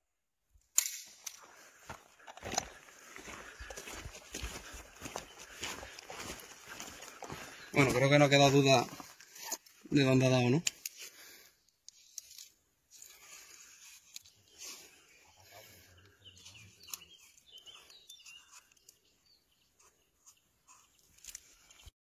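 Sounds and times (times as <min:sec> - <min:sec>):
marker scratching on plastic film: 0:16.7 - 0:19.0, 0:19.7 - 0:21.2.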